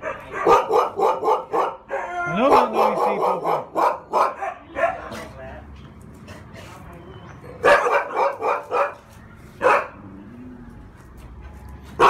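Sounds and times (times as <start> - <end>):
dog barking: 0.0 - 5.3, 7.6 - 10.0.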